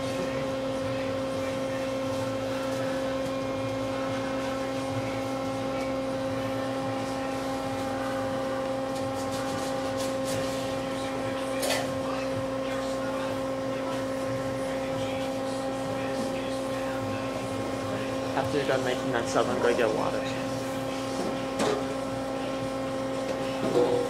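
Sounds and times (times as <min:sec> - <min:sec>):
kitchen equipment electrical hum: 0:00.0 - 0:24.0.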